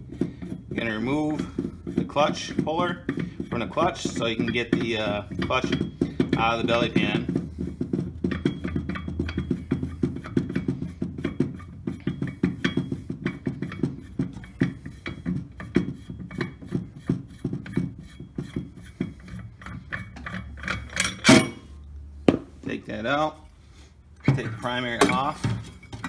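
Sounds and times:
metal scraping clunk: 0.0s - 22.7s, 23.4s - 26.0s.

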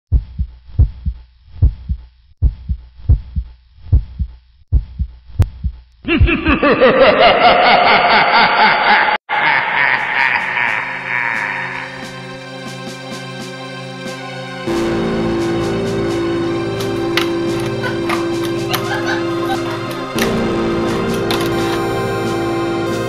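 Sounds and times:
heartbeat thumps: 0.1s - 6.7s.

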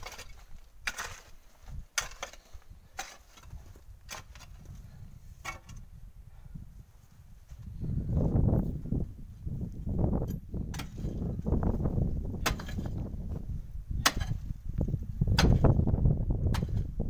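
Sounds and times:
pick striking rocky ground: 0.0s - 6.0s, 9.6s - 17.0s.

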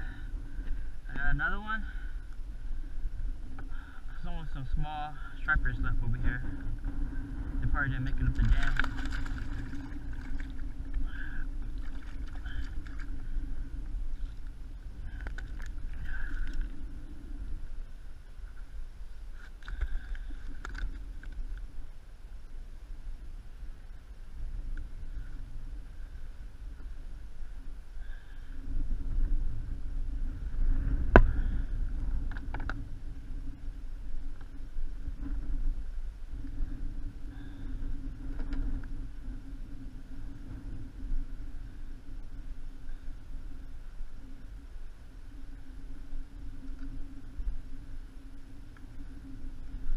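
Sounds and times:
wind rumbling on microphone: 0.0s - 49.9s
water lapping against kayak hull: 8.0s - 17.2s
splashes and knocks: 8.4s - 10.6s.

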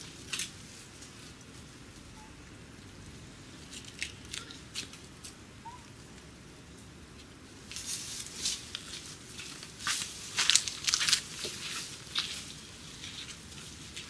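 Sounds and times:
low steady background noise: 0.0s - 14.0s
crackling and rustling clicks: 0.2s - 1.5s, 3.7s - 5.4s, 7.2s - 14.0s.

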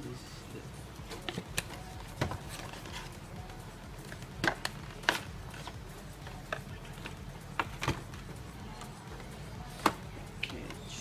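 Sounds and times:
plastic scraping against cardboard: 1.1s - 3.2s
packaging clicks and knocks: 4.0s - 8.3s.

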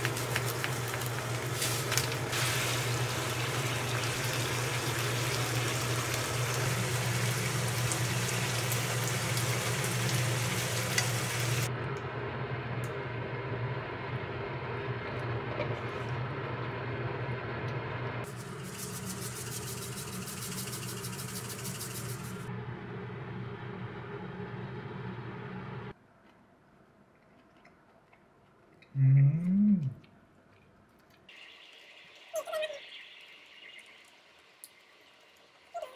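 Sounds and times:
stir-fry sizzling in a wok: 0.0s - 11.7s.

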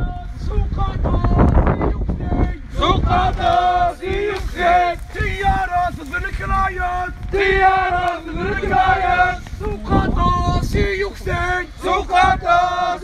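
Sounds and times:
crowd of men chanting: 0.0s - 13.0s.

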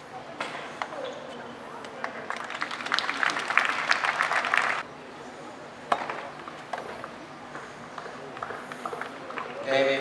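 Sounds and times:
crowd applause: 2.0s - 4.8s.

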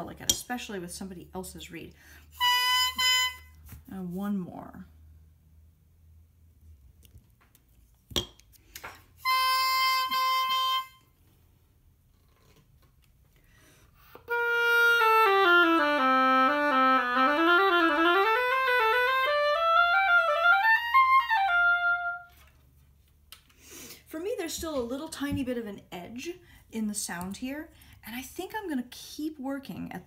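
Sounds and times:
oboe playing: 2.3s - 3.6s, 9.2s - 11.2s, 14.1s - 22.4s.

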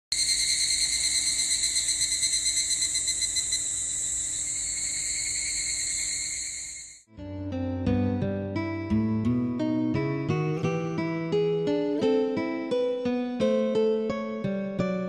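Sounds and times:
insects buzzing shrilly: 0.1s - 7.1s.

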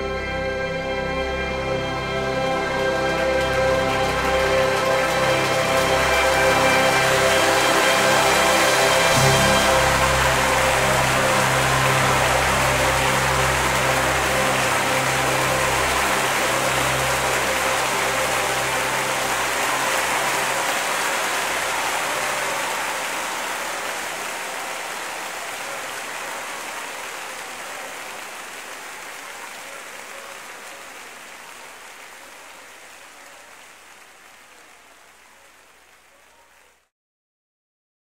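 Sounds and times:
held final music chord: 0.1s - 22.9s.

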